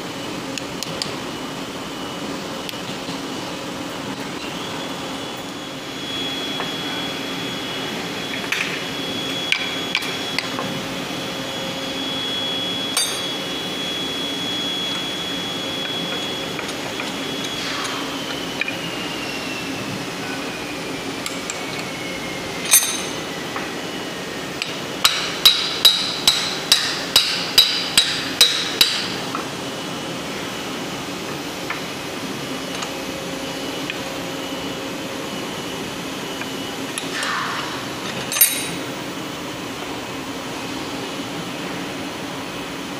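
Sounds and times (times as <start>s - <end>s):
workshop hum: 0.0s - 42.9s
hammer striking metal: 13.0s - 13.4s, 22.7s - 23.2s, 25.0s - 29.2s.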